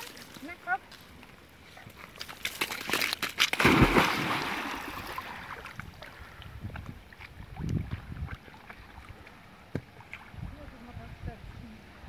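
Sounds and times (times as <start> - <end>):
water washing: 2.0 - 5.8
dog splashing into lake: 2.1 - 5.8.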